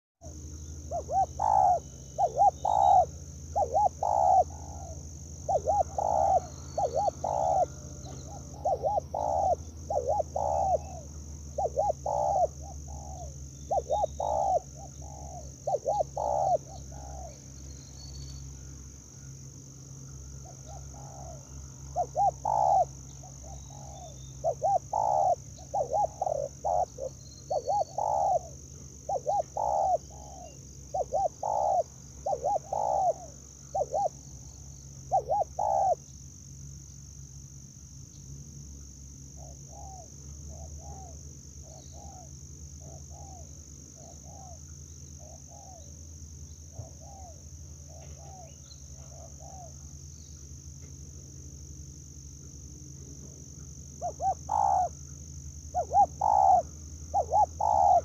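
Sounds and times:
high insect buzz: 0.2 - 58.0
dove cooing: 0.8 - 17.4, 20.4 - 34.2, 35.0 - 36.0, 39.4 - 44.6, 46.7 - 49.8, 54.0 - 54.9, 55.7 - 58.0.

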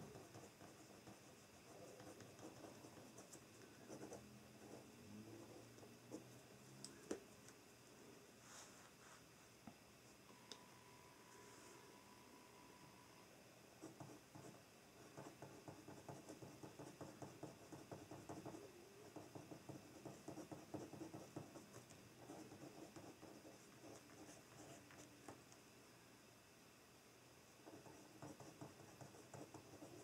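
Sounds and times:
pen scratching on paper: 0.0 - 6.3, 13.8 - 25.1, 27.6 - 30.0.

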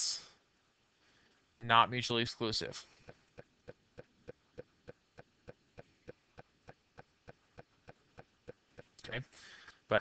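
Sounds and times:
faint ticking: 2.7 - 10.0.

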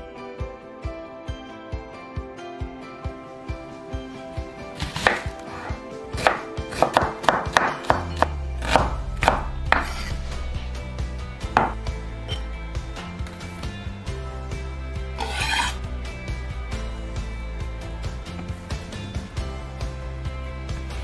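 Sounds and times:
background music with bass: 0.0 - 21.0
knife chopping on wooden board: 4.8 - 10.1, 11.5 - 12.4.

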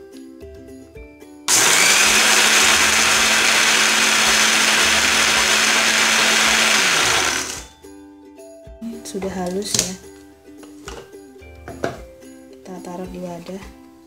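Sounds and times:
blender motor grinding chips: 1.5 - 7.7.

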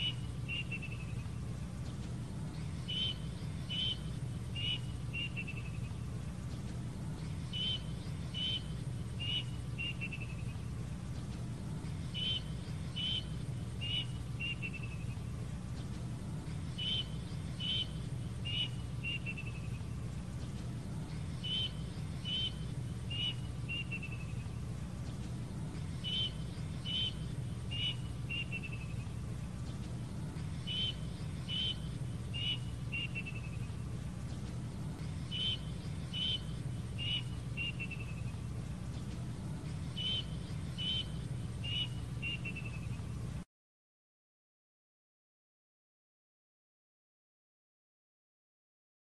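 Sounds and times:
steady low hum: 0.0 - 43.5
cuckoo whistling: 35.3 - 38.2.

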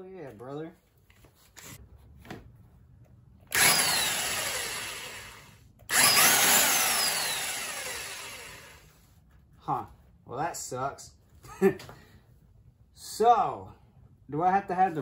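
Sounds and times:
impact wrench whining: 3.5 - 8.9.

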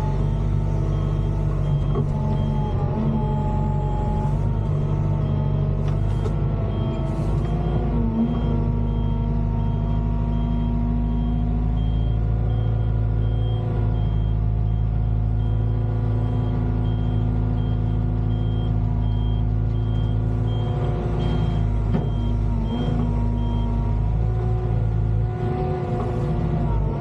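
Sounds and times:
diesel engine running: 0.0 - 27.0.

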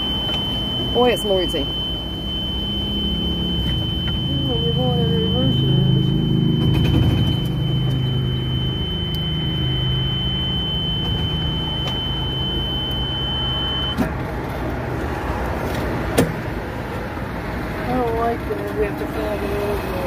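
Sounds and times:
high-pitched tone: 0.0 - 14.0
road noise: 0.0 - 20.0.

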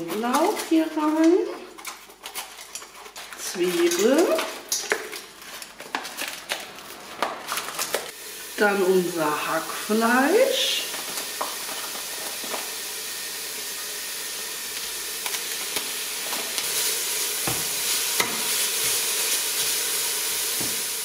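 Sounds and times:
spatula scraping pot: 0.0 - 6.0
meat sizzling in oil: 8.0 - 21.0.

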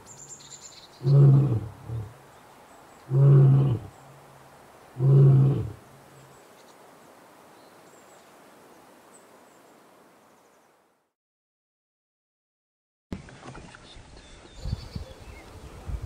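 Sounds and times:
faint hiss: 0.0 - 11.1
lion roaring: 1.0 - 2.2, 3.1 - 4.0, 5.0 - 5.8.

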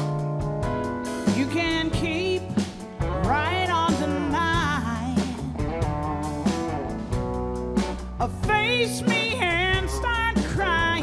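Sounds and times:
live band with electric guitars: 0.0 - 11.0
woman singing with vibrato: 1.3 - 5.7, 8.2 - 11.0.

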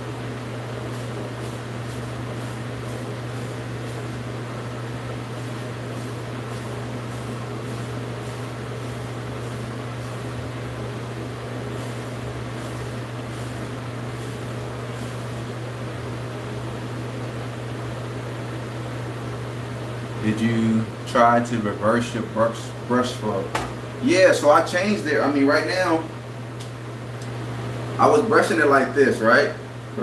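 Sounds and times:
steady low hum: 0.0 - 30.0
hairbrush swishing through hair: 0.8 - 4.6, 5.2 - 10.6, 11.6 - 15.5.

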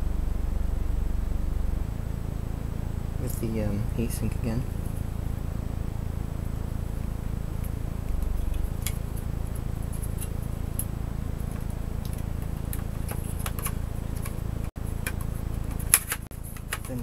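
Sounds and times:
steady low hum: 0.0 - 17.0
metal parts clicking and tapping: 11.5 - 17.0.

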